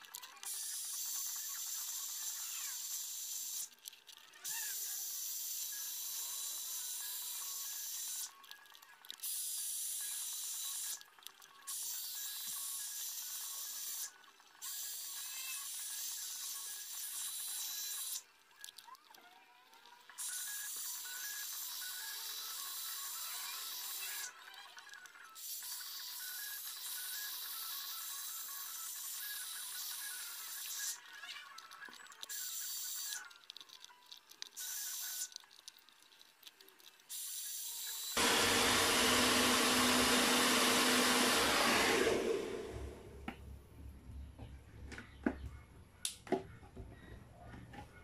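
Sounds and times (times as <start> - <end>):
hair dryer blowing: 38.2 - 43.3.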